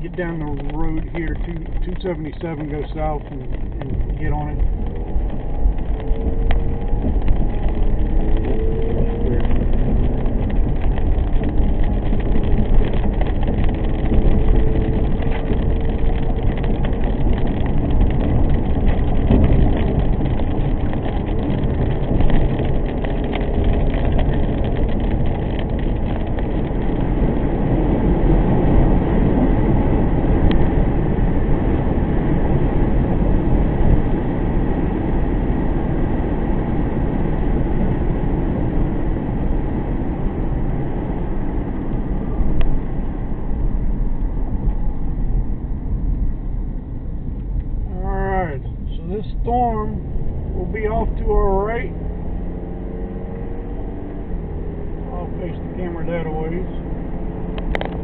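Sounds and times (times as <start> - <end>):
car road and engine noise: 0.0 - 58.0.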